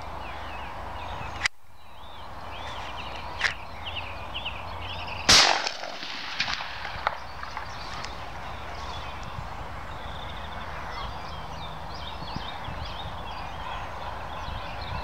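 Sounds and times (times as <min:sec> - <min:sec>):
small birds chirping: 0:00.0 - 0:15.0
shotgun shot: 0:05.3 - 0:07.8.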